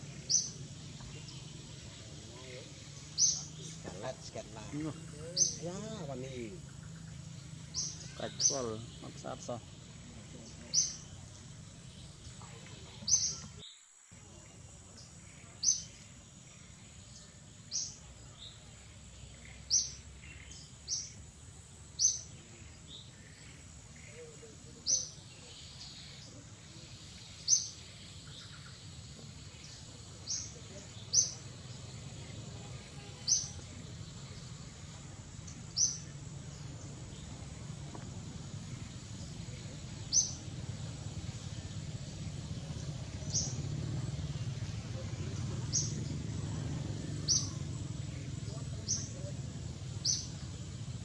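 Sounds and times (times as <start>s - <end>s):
bird chirping: 0.0s - 51.0s
low background rumble: 26.0s - 51.0s.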